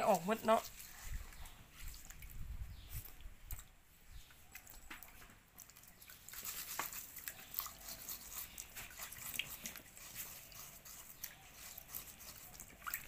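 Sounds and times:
water splashing: 0.0 - 13.0
hands scrubbing: 5.6 - 13.0.

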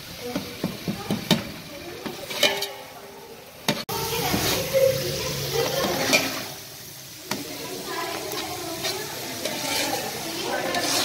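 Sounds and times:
ladle clinking against pot: 2.3 - 2.8.

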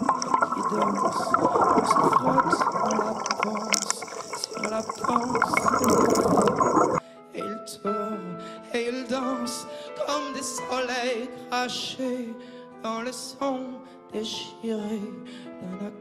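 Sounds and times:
dense crackling noise: 0.0 - 7.0.

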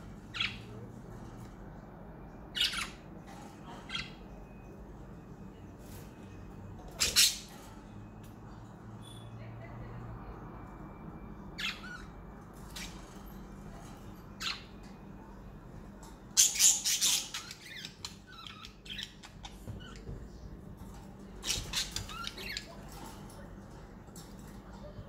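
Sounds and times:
budgerigars chirping and squawking: 0.2 - 0.7, 2.5 - 4.2, 6.9 - 7.7, 16.4 - 20.2, 21.4 - 23.2.

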